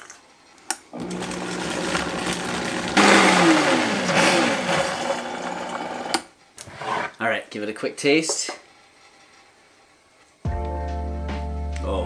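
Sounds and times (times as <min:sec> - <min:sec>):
blender motor running: 0:01.0 - 0:06.2.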